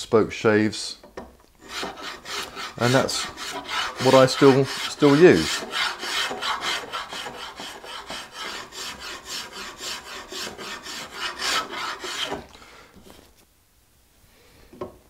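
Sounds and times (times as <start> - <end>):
spokeshave scraping wood: 1.6 - 13.3.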